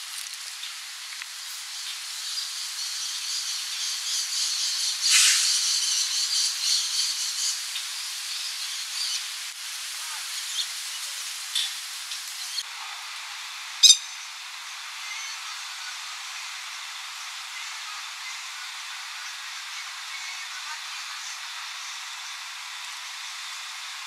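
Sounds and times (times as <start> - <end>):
steady outdoor hiss: 0.0 - 24.0
bird chick sharp call: 13.8 - 14.2
high shrill chorus: 13.8 - 14.2.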